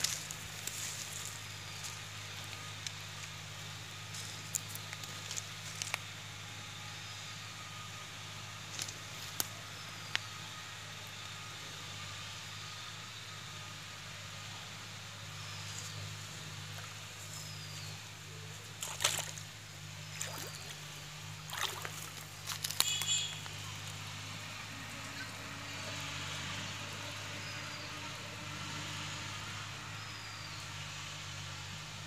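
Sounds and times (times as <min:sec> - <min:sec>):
steady low hum: 0:00.0 - 0:32.0
water splashing and sloshing: 0:18.8 - 0:19.5, 0:20.1 - 0:20.8, 0:21.4 - 0:22.8.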